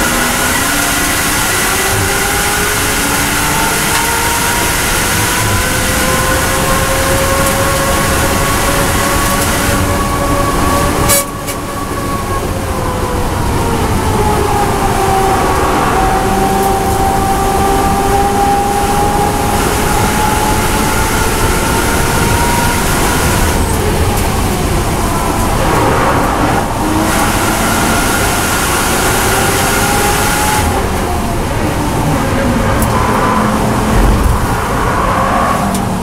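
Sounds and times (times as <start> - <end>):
car engine whining: 0.0 - 36.0
car braking hard: 13.9 - 36.0.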